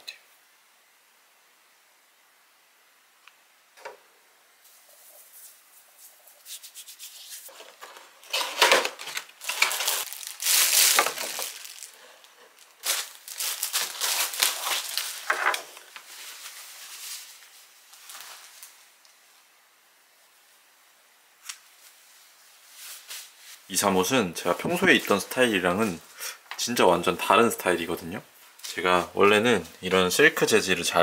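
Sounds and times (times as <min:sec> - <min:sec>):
plastic packaging crinkling: 0:06.7 - 0:18.8.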